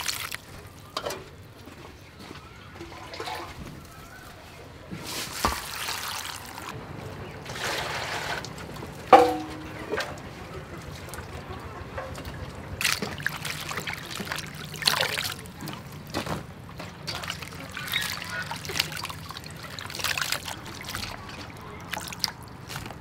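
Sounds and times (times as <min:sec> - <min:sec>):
water splashing and dripping: 0:00.0 - 0:01.2, 0:02.8 - 0:23.0
metal bowl ringing: 0:09.2 - 0:10.0.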